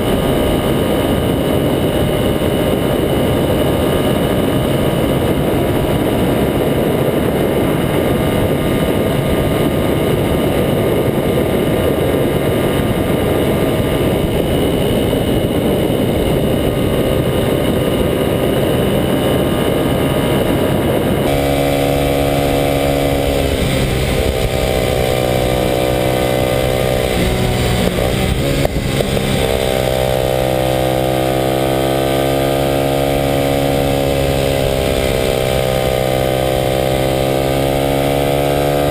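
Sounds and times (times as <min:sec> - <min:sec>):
heavy rushing noise: 0:00.0 - 0:38.9
motorcycle engine accelerating: 0:00.0 - 0:38.9.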